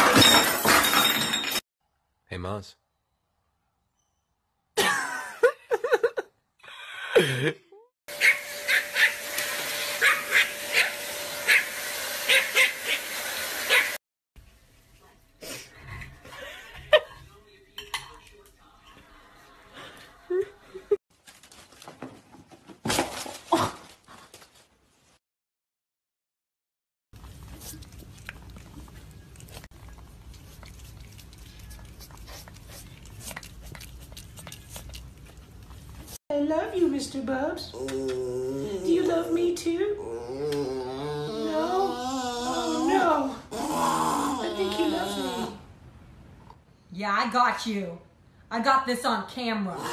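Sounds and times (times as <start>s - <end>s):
small dog yipping: 8.2s - 9.2s, 10.0s - 11.7s, 12.3s - 13.0s, 13.7s - 14.0s
cat chewing and licking: 27.2s - 36.2s
dog whining: 40.0s - 45.6s.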